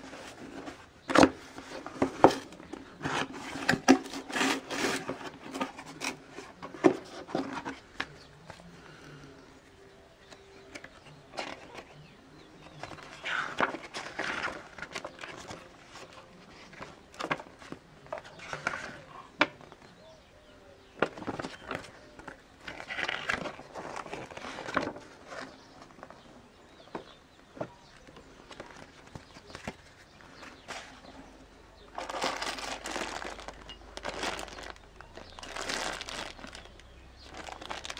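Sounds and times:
paper pages rustling: 0:00.0 - 0:08.7, 0:12.7 - 0:19.2, 0:21.0 - 0:26.2, 0:27.6 - 0:31.3, 0:31.9 - 0:37.9.

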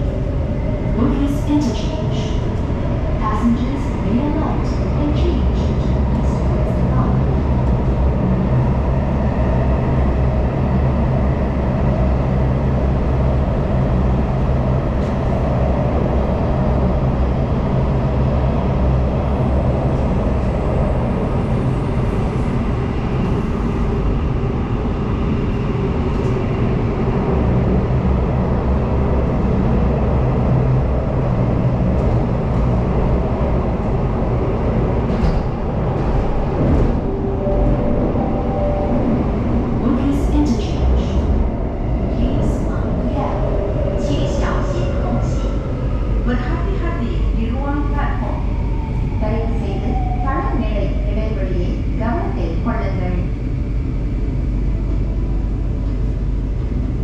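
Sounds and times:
train rumbling in tunnel: 0:00.0 - 0:57.0
low hum: 0:36.7 - 0:41.8.

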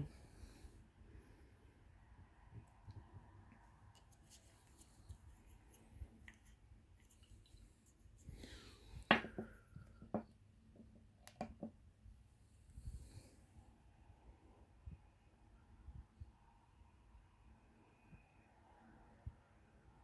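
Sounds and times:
knock on table: 0:09.1 - 0:10.3.

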